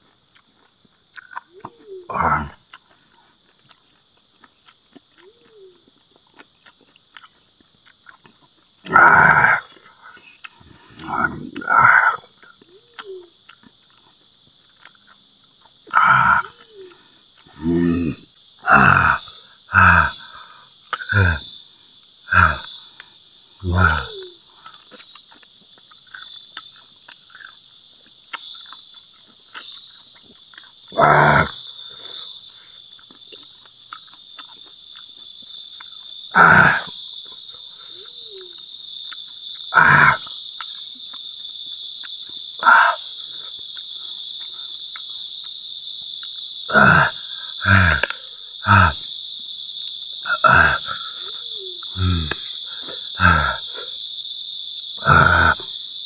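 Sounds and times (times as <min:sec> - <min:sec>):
high insect drone: 0:00.0 - 0:56.0
man groaning and gasping: 0:17.5 - 0:21.5, 0:23.6 - 0:24.2, 0:46.7 - 0:49.0, 0:50.3 - 0:51.2, 0:52.0 - 0:53.9, 0:55.0 - 0:55.7.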